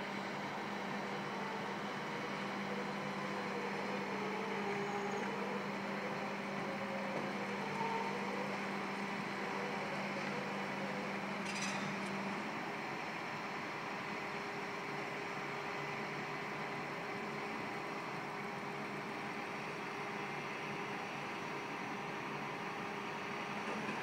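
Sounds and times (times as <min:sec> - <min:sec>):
machinery drone: 0:00.0 - 0:13.4.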